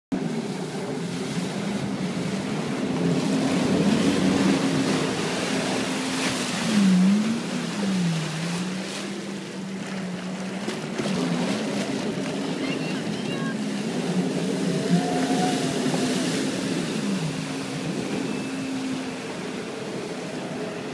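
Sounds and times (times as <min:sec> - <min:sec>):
jet ski engines running: 0:00.1 - 0:20.9
water rushing and splashing: 0:00.1 - 0:20.9
wind on microphone: 0:11.1 - 0:20.9
rush of spray: 0:12.6 - 0:20.7.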